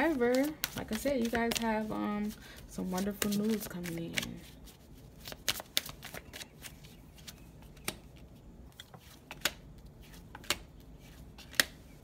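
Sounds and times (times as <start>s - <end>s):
cards snapping on a table: 9.3s - 9.6s, 10.3s - 10.7s, 11.4s - 11.8s.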